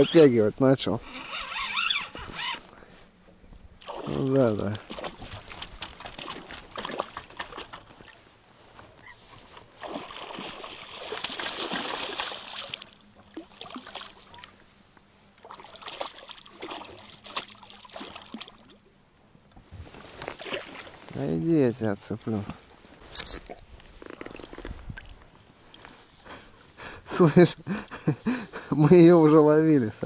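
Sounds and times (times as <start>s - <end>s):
water splashing and sloshing: 3.8s - 26.8s.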